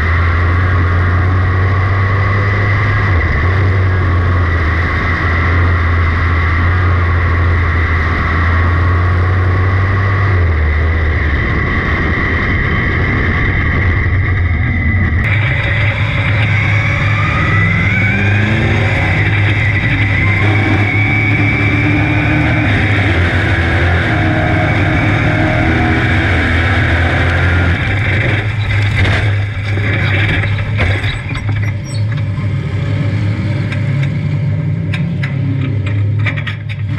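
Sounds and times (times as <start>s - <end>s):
race car engine running: 0.0s - 36.9s
sharp knocks and clatter: 27.3s - 32.5s, 33.6s - 36.9s.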